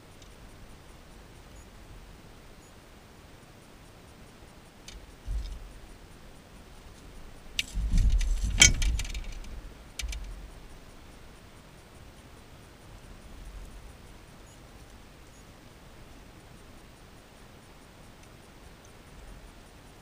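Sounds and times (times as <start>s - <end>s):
dull thumps: 5.2s - 5.9s, 7.6s - 10.4s
metal gear clinking: 7.6s - 10.3s.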